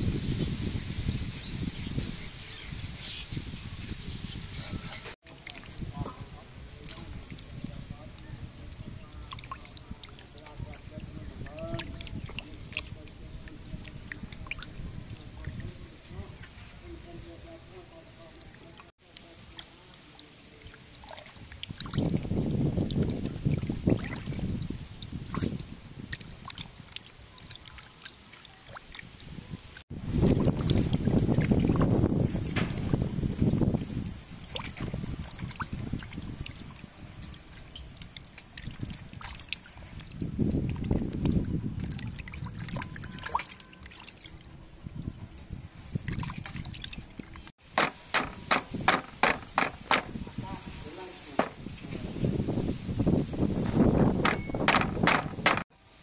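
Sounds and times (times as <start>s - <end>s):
water splashing in metal basin: 5.2s - 6.0s, 8.2s - 15.8s, 18.4s - 33.7s, 34.4s - 44.4s
cleaver striking chopping board: 47.8s - 50.1s.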